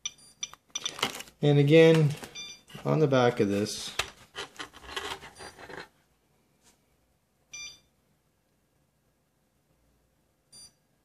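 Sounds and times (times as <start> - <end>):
geiger counter beep: 7.6 - 7.9.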